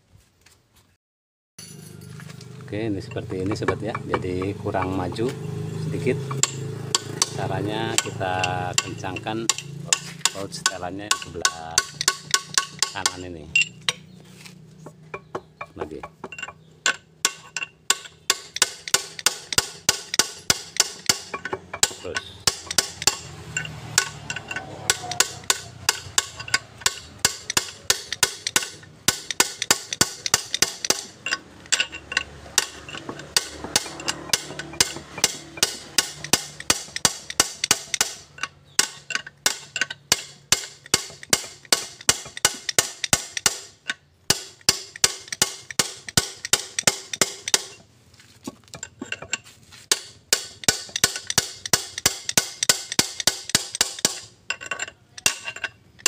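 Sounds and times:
rapid metallic clicking of gears: 6.3s - 13.4s, 16.4s - 47.8s, 49.9s - 56.0s.

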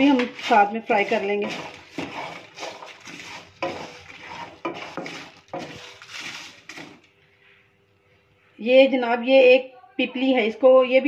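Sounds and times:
spices scraping in a pan: 0.0s - 7.5s.

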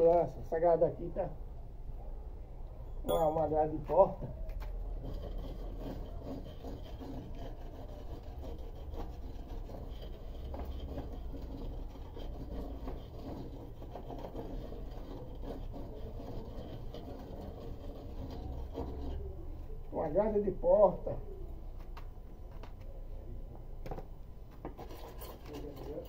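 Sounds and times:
trowel scraping wet mortar: 4.6s - 19.4s, 24.7s - 26.0s.

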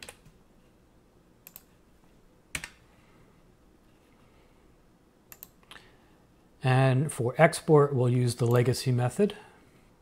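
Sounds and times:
computer keys clicking: 0.0s - 0.4s, 1.4s - 1.7s, 2.5s - 2.8s, 5.3s - 5.8s.

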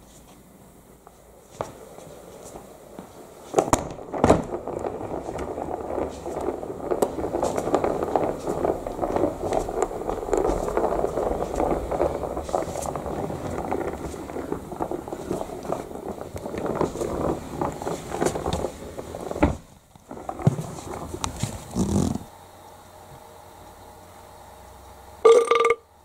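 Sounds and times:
plastic bricks rattling: 3.6s - 22.3s.

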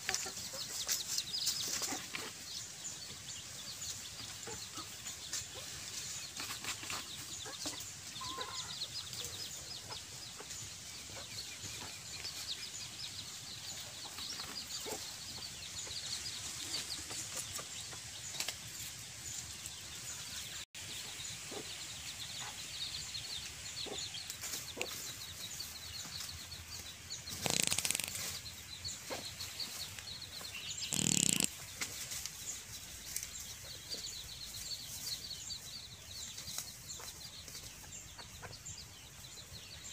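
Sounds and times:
chickens clucking: 0.0s - 39.9s
small scratching sounds: 5.0s - 7.9s, 26.0s - 35.2s
wing flapping: 27.3s - 28.2s.

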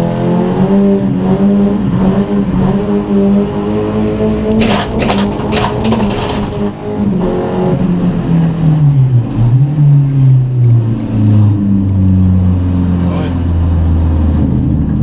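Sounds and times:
rally car engine at high revs: 0.0s - 15.0s
sharp knocks: 4.6s - 6.8s.

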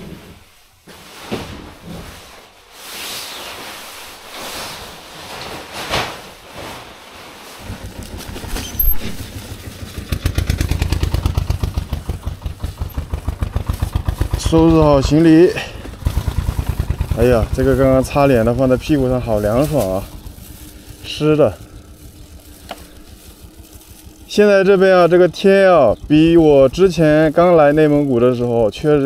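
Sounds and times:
tent fabric rustling: 0.0s - 29.0s
tent poles clattering: 3.9s - 29.0s
bicycle rolling on asphalt: 6.4s - 29.0s.

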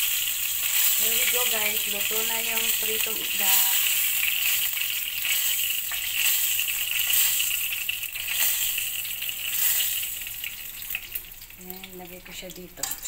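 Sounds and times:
hot oil sizzling in wok: 0.0s - 13.0s
oil spatter crackles: 0.0s - 13.0s.

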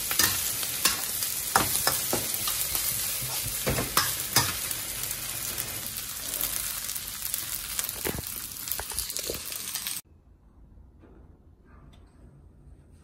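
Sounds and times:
rice sizzling in a wok: 0.0s - 10.0s.

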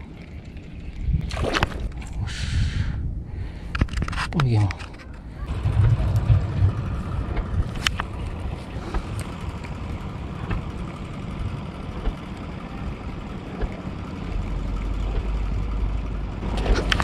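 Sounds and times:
wind buffeting microphone: 0.5s - 13.7s.

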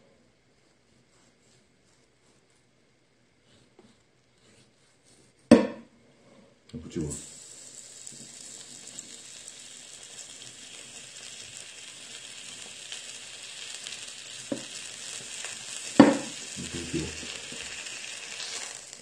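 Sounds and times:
steady sizzling hiss: 0.0s - 19.0s
sharp knock: 5.5s - 5.9s.

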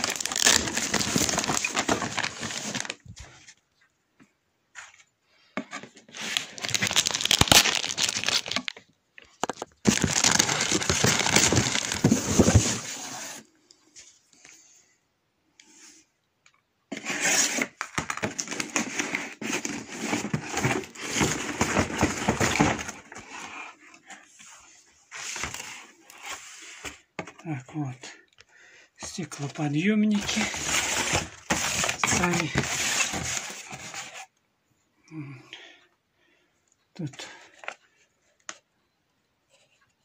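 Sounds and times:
packaging tearing: 0.0s - 3.0s, 6.2s - 8.8s, 9.8s - 12.6s, 30.1s - 33.5s
plastic bag crinkling: 0.0s - 3.2s, 6.2s - 12.7s, 30.1s - 33.4s.

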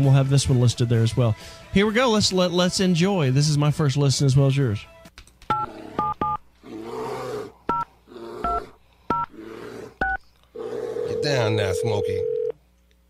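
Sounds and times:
bear growling: 5.6s - 11.3s
phone ring tone: 11.0s - 12.6s.

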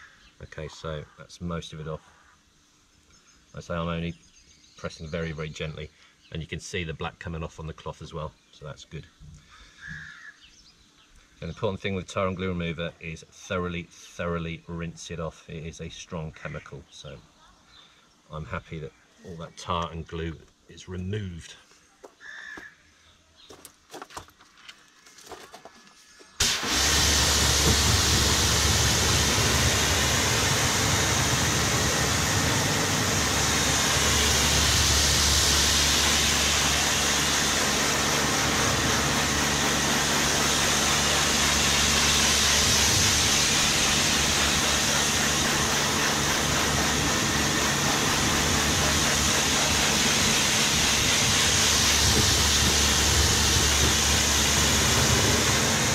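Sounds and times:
pressure washer motor hum: 26.4s - 55.9s
water jet hissing: 26.4s - 55.9s.

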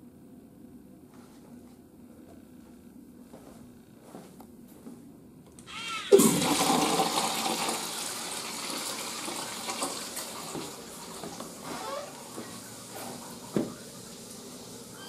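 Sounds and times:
rush of flushing water: 6.2s - 15.0s.

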